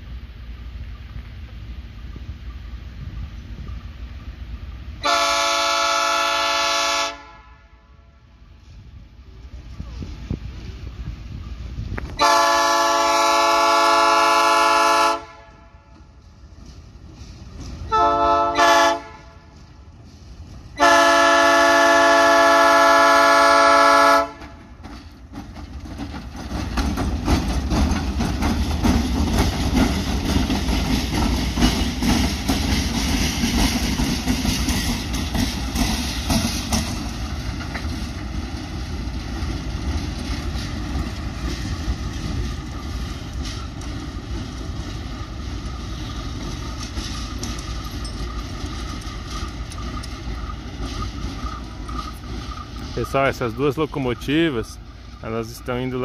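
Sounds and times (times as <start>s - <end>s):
train wheels rolling: 0.0s - 56.0s
locomotive air horn: 5.0s - 8.2s, 12.2s - 16.0s, 17.9s - 19.6s, 20.8s - 24.6s
diesel engines rumbling: 8.3s - 56.0s.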